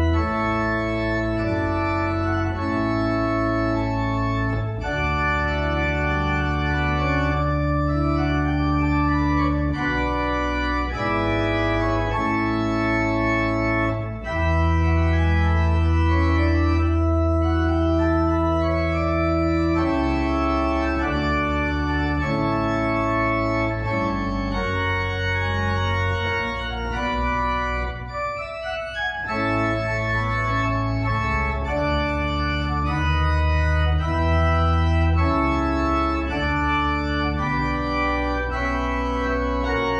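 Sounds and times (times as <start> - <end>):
electronic organ chords: 0.0 - 39.9.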